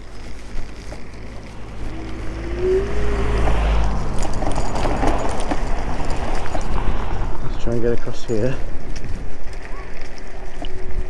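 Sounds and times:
rising electric whine: 0:00.0 - 0:07.4
road rumble: 0:00.0 - 0:11.0
wind rushing over microphone: 0:00.0 - 0:11.0.

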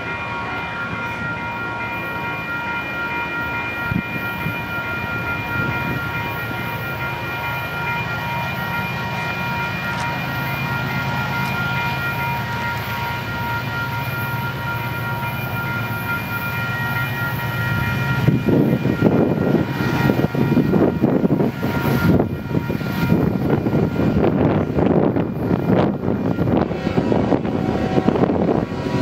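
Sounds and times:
distant diesel locomotives droning: 0:00.0 - 0:29.0
wind buffeting microphone: 0:03.6 - 0:06.8, 0:17.5 - 0:29.0.

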